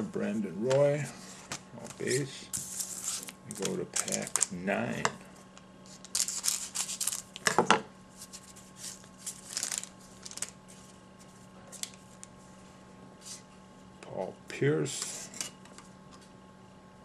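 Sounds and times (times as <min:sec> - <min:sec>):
foil crinkling: 0:02.0 - 0:04.6, 0:05.9 - 0:07.4, 0:08.2 - 0:11.0
scissors snipping foil wrapper: 0:03.5 - 0:04.5.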